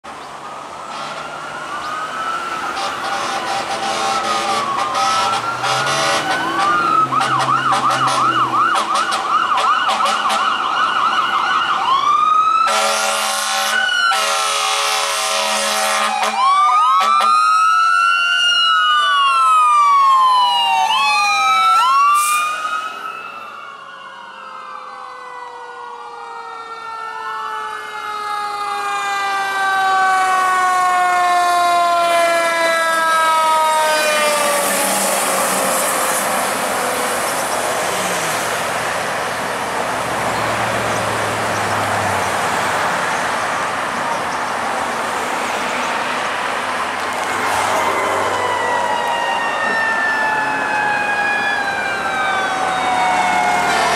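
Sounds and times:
electronic sirens wailing: 0.1 - 53.9
loud horn blasts: 0.9 - 1.3, 2.7 - 10.6, 12.6 - 17.5
mechanical siren winding down: 47.2 - 53.9.

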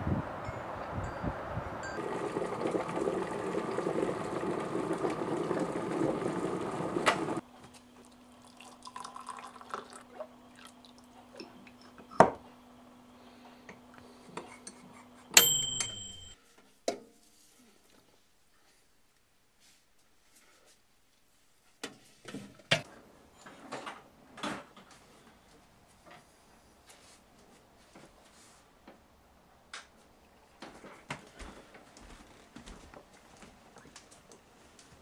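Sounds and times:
water pouring into a mug: 2.0 - 7.4, 8.3 - 11.1.

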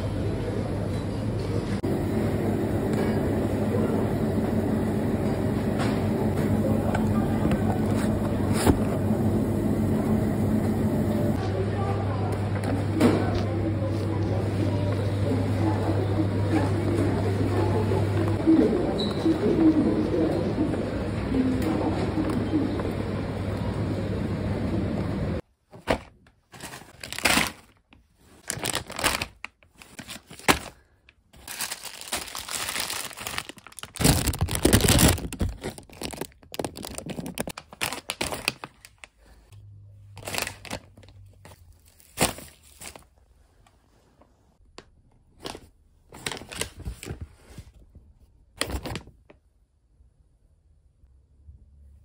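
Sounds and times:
shop background noise: 0.0 - 25.4
grocery packaging rustling: 25.8 - 39.5, 40.1 - 43.7, 45.4 - 47.9.

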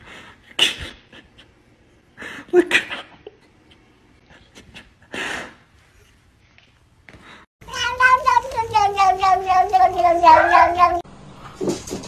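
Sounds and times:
cat meowing: 7.7 - 11.0.

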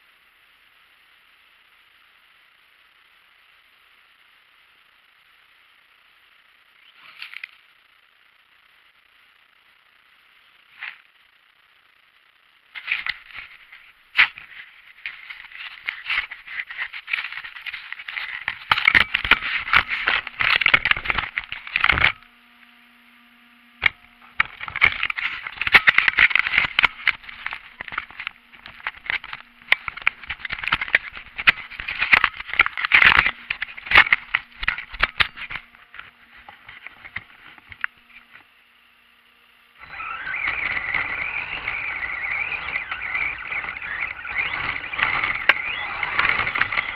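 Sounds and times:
snow crackling and scraping: 12.7 - 21.8, 39.8 - 46.9
high-pitched motor whine: 12.8 - 46.9.

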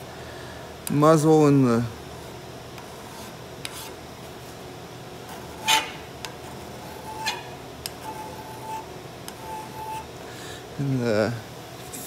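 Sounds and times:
hand file scraping steel: 5.3 - 10.1.

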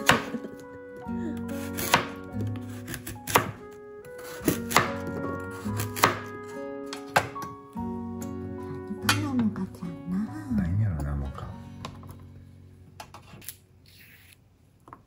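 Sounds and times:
knife chopping on cutting board: 0.0 - 0.4, 1.6 - 3.6, 4.2 - 6.3, 6.9 - 7.5
background music: 0.0 - 13.9.

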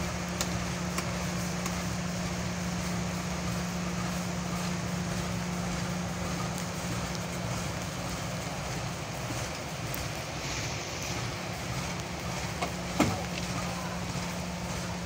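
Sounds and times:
diesel train idling hum: 0.0 - 15.0
outdoor noise: 0.0 - 15.0.

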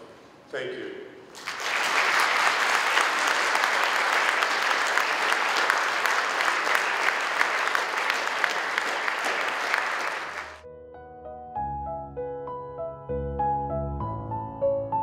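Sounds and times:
audience applauding: 1.3 - 10.6
soft piano music: 10.6 - 15.0.

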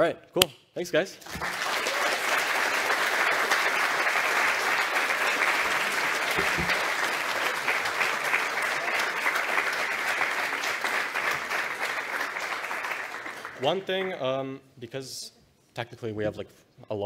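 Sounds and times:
audience applauding: 1.2 - 14.2.

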